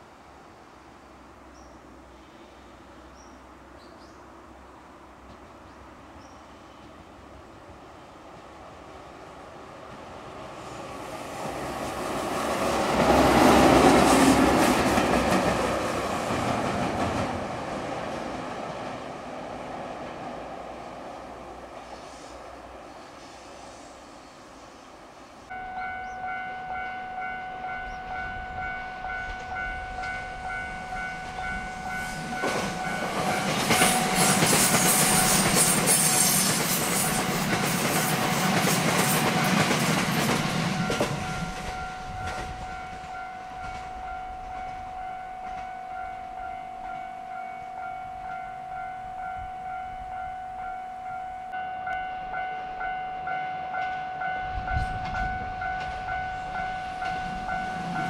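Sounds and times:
electric train passing: 0.0 - 58.0
level crossing bell ringing: 25.6 - 34.2.

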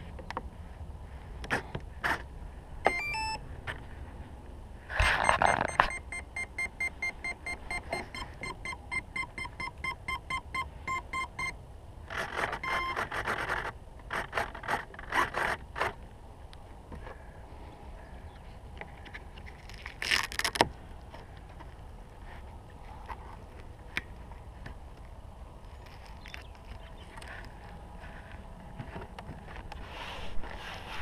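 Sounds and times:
rising electronic startup tones: 2.9 - 3.4
short motor beeps: 2.9 - 3.4, 5.0 - 11.6, 12.6 - 13.0.

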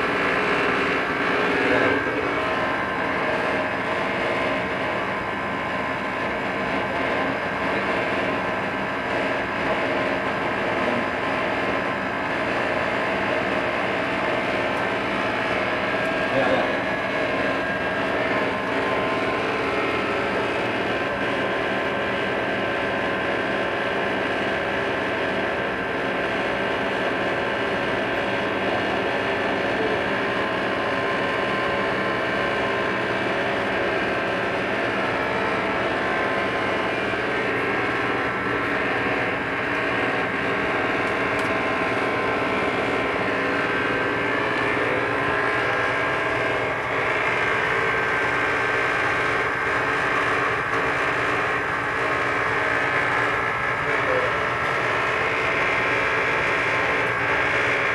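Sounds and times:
motors or fans droning: 0.0 - 57.9
thin high whine: 33.1 - 57.9.

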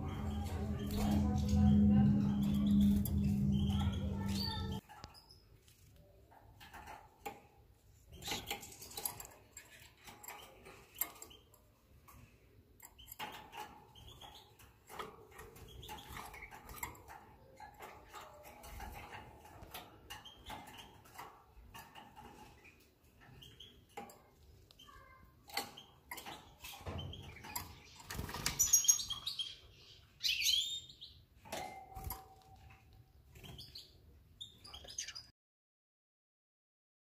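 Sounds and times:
small bird squeaking and chirping: 24.8 - 31.2, 33.4 - 35.3.

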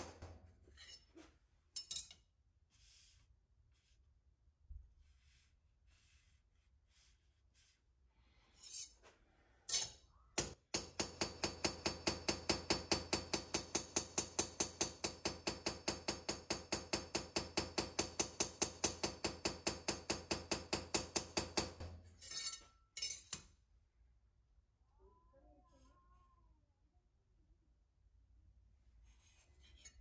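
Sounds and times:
hammer tapping metal blade: 1.8 - 2.3, 9.7 - 23.6.

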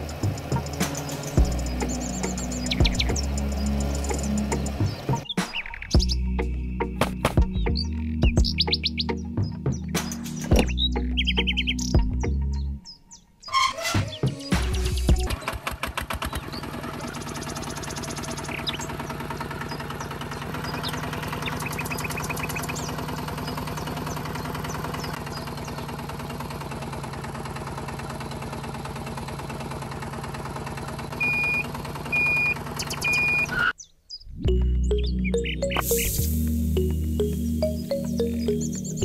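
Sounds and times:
tractor engine knocking: 0.0 - 5.3, 14.6 - 33.5.

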